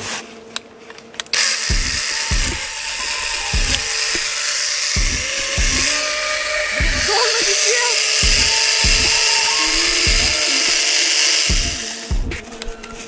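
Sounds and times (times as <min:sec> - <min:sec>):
mini chainsaw whirring: 0:01.2 - 0:12.2
low thumps: 0:01.7 - 0:13.0.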